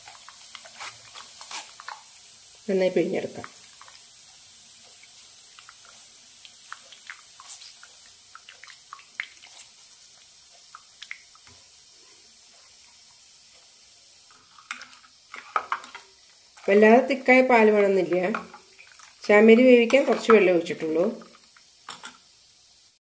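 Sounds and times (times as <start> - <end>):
liquid dripping through strainer: 4.8 - 11.6.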